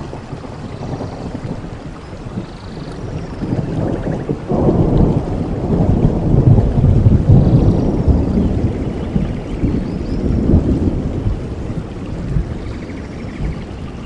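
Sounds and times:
rolling thunder: 0.0 - 14.0
steady rain: 0.0 - 14.0.

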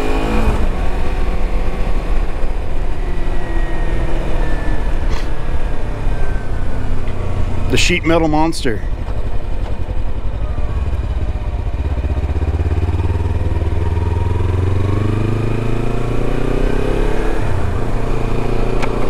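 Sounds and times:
motorcycle engine running: 5.8 - 19.0.

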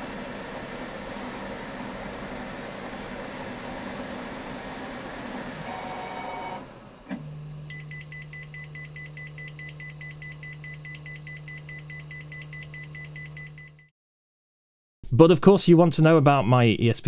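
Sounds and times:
printer fans and motors: 0.0 - 13.7
buzzer beeping rapidly: 7.7 - 13.9.

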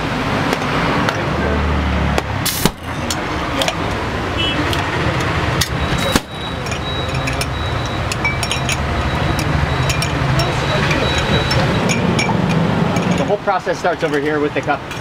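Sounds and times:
street noise: 0.0 - 15.0
glass and spoon clinks: 6.4 - 13.4.

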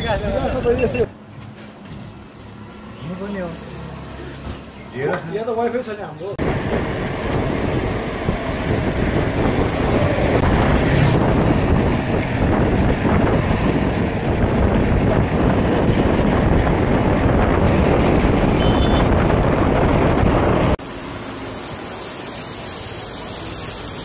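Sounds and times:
wind buffeting microphone: 6.4 - 20.8
low rumble of travel: 6.4 - 23.9.

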